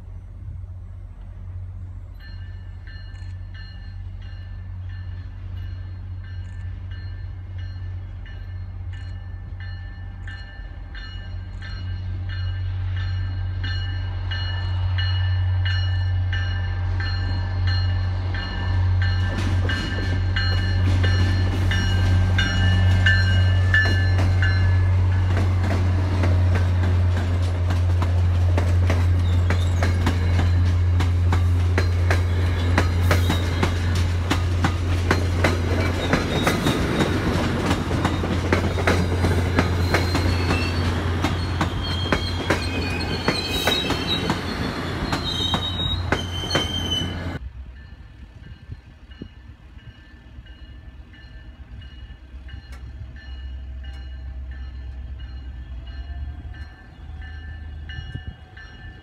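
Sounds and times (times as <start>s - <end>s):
diesel locomotive engine drone: 0.0s - 59.0s
train wheels clicking over rail joints: 17.2s - 47.4s.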